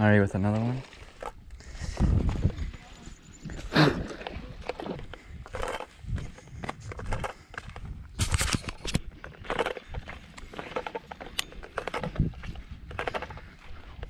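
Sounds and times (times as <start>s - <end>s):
footsteps crunching on gravel: 4.1s - 14.0s.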